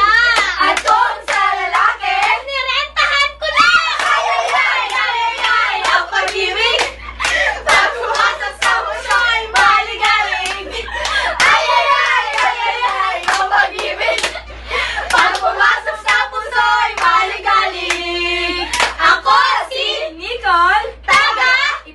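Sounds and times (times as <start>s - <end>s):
people singing: 0.0s - 21.9s
people clapping hands: 0.2s - 2.4s, 3.6s - 14.4s, 15.1s - 16.4s, 17.0s - 17.2s, 17.8s - 18.1s, 18.7s - 19.0s
people shrieking and laughing: 3.4s - 4.9s, 10.4s - 13.2s, 21.1s - 21.9s.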